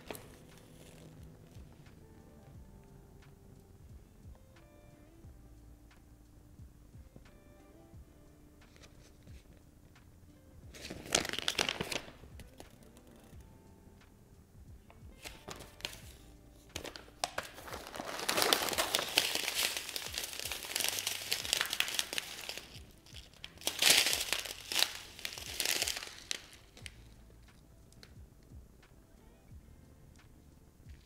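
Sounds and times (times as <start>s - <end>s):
paper and plastic crinkling: 0.0s - 1.2s, 10.7s - 13.2s, 15.2s - 27.0s
background music: 0.0s - 31.0s.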